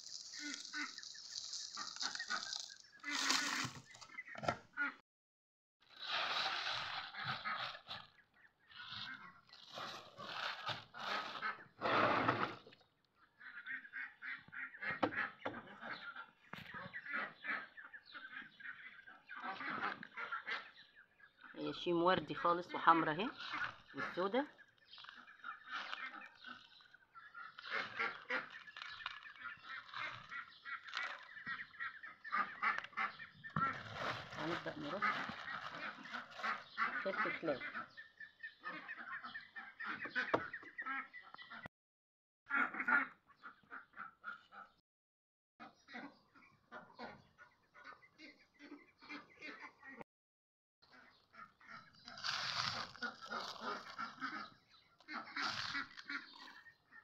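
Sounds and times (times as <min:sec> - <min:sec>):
plastic bag rustling with salt: 0:00.0 - 0:04.0, 0:05.9 - 0:08.2, 0:08.8 - 0:11.5, 0:27.6 - 0:31.3, 0:33.5 - 0:36.7, 0:52.1 - 0:54.2
farmyard fowl calling: 0:00.0 - 0:05.0, 0:06.7 - 0:12.1, 0:13.4 - 0:41.7, 0:42.5 - 0:44.8, 0:50.9 - 0:57.0
fowl honking calls: 0:00.0 - 0:05.0.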